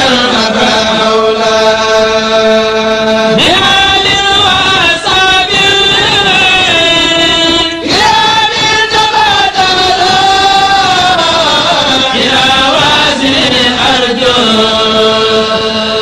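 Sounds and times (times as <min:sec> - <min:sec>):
men chanting in unison: 0:00.0 - 0:16.0.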